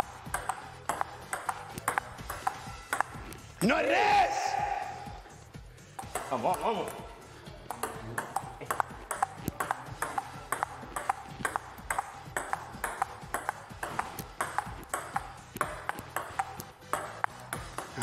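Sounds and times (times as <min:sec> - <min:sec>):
table tennis ball clicking: 0:00.3 - 0:03.4, 0:07.7 - 0:18.0.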